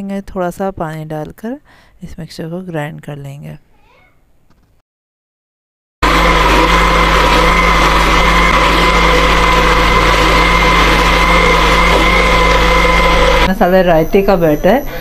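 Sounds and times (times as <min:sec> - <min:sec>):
mixer grinder motor whining: 0:06.0 - 0:15.0.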